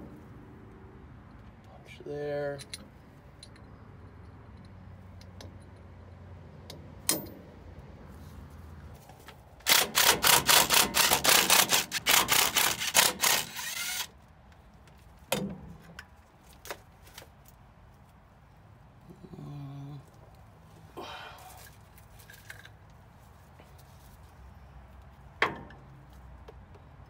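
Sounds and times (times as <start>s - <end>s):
power tool rattling: 9.6s - 14.1s.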